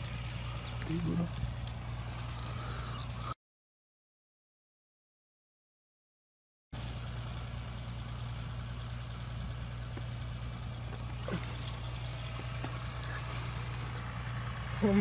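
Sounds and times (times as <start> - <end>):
low engine-like hum: 0.0 - 3.4, 6.8 - 15.0.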